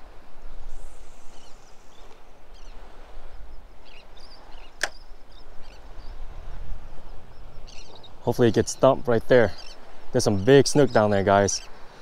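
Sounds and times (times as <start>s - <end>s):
wind buffeting microphone: 0.0s - 11.9s
faint bird chirps: 1.0s - 6.3s, 7.0s - 11.8s
sharp click: 4.8s - 5.0s.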